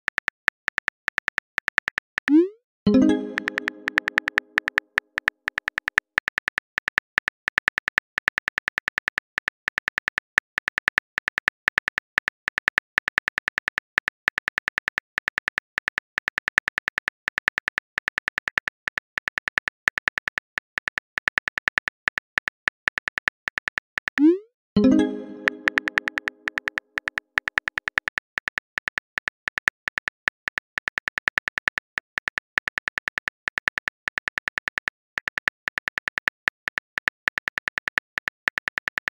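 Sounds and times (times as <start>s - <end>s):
phone keyboard typing clicks: 0.0s - 39.0s
message sent chime: 2.3s - 4.6s, 24.8s - 26.5s.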